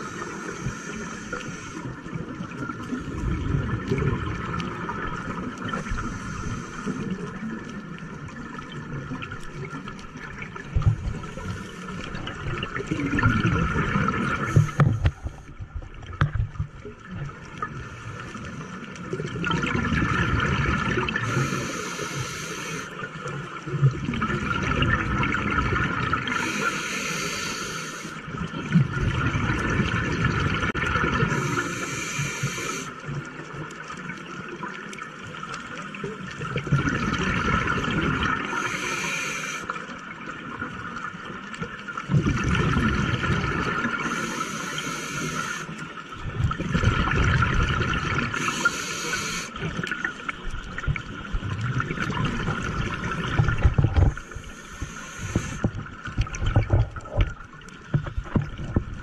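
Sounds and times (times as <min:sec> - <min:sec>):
regulator hiss on inhale: 0:00.0 - 0:02.0, 0:05.7 - 0:07.3, 0:14.4 - 0:15.6, 0:21.2 - 0:23.0, 0:26.3 - 0:28.2, 0:31.2 - 0:33.0, 0:38.4 - 0:39.9, 0:43.9 - 0:45.9, 0:48.3 - 0:49.8, 0:54.1 - 0:55.8
exhaled air bubbling: 0:00.0 - 0:35.2, 0:35.8 - 0:59.0.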